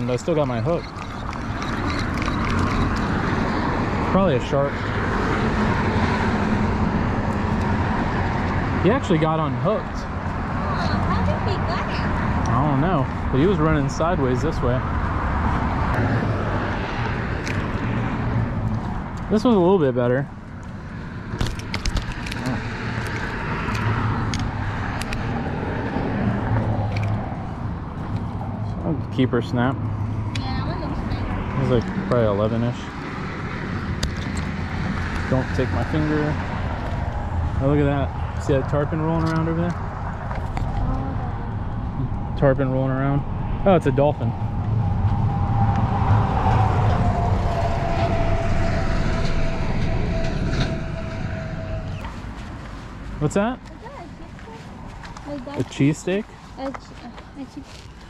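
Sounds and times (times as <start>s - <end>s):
highway traffic rush: 0.0s - 58.0s
vehicle passing on bridge: 0.0s - 58.0s
falling whine: 40.6s - 53.2s.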